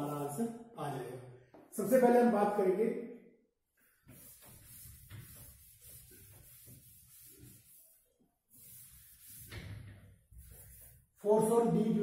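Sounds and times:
marker scratching on whiteboard: 3.8 - 11.2.

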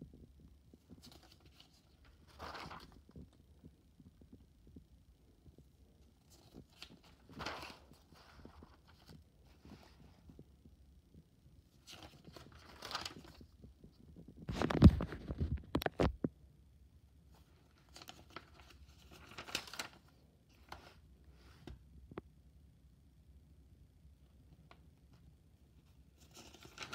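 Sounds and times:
paper rustling: 0.8 - 3.4, 6.2 - 10.4, 11.7 - 13.6, 14.4 - 16.0, 17.3 - 21.8, 26.1 - 26.9
notebook thump and clatter: 14.4 - 16.2.

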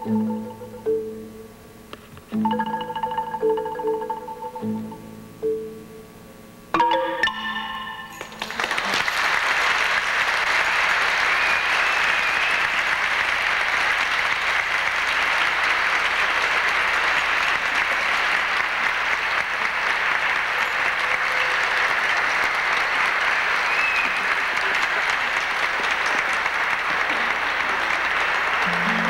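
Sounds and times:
marimba notes: 0.0 - 1.5, 2.3 - 6.0, 6.8 - 8.4, 28.6 - 29.0
audience applause: 8.2 - 29.0.

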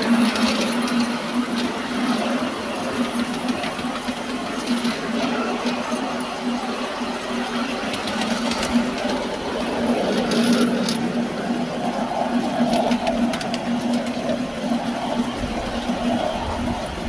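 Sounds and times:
miniature train hum and rumble: 0.0 - 17.0
wheels clicking on rails: 0.0 - 17.0.

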